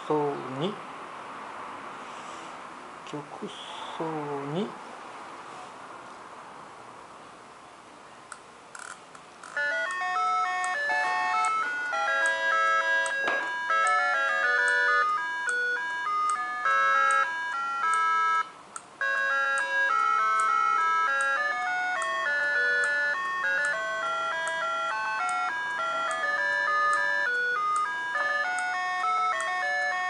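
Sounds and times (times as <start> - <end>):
electronic melody tune: 9.6 - 30.0.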